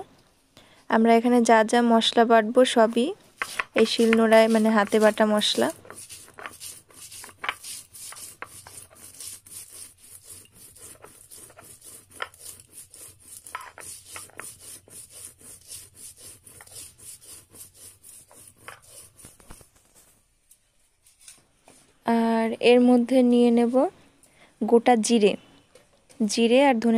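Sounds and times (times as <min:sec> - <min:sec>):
stone roller grinding seeds: 0:03.4 - 0:19.8.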